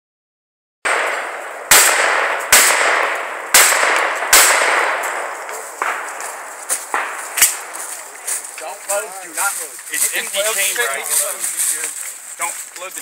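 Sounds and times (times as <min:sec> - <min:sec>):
shotgun shots with echo: 0:00.9 - 0:08.5.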